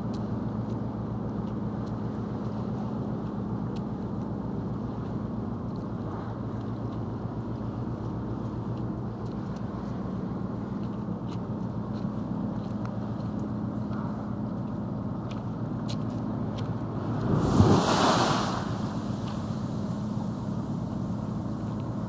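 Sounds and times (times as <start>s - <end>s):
ferry engines droning: 0.0s - 22.0s
water washing against quay wall: 17.0s - 21.1s.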